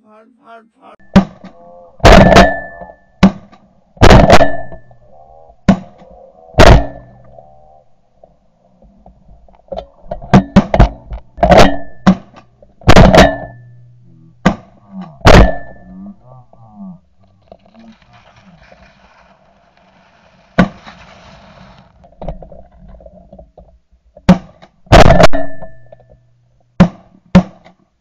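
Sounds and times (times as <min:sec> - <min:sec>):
shotgun shots: 0:01.1 - 0:04.7, 0:06.6 - 0:07.1.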